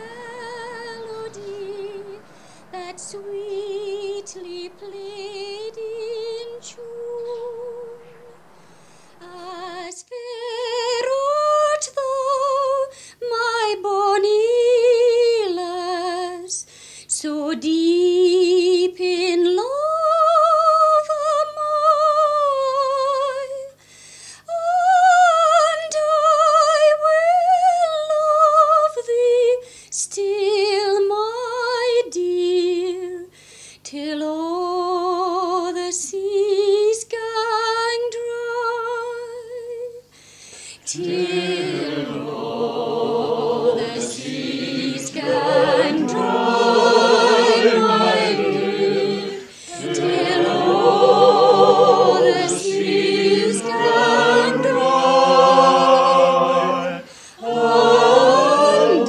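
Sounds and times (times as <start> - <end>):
woman singing slow melody: 0.0 - 23.8, 24.4 - 40.1.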